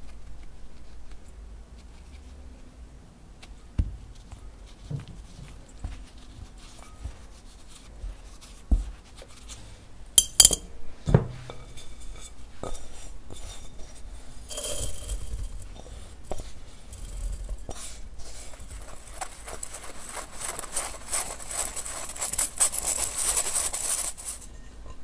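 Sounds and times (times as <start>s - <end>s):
strainer clinking against glass bowl: 10.2s - 10.7s.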